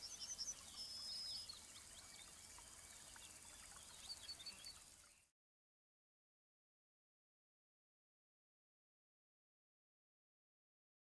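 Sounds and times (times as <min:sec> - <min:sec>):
birds chirping: 0:00.0 - 0:05.3
steady outdoor hiss: 0:00.0 - 0:05.3.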